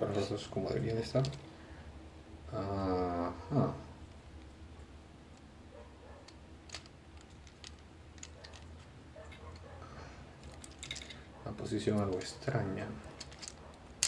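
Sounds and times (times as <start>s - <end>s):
low steady hum: 0.0s - 14.0s
plastic toy joints clicking: 6.7s - 8.7s, 13.2s - 13.6s.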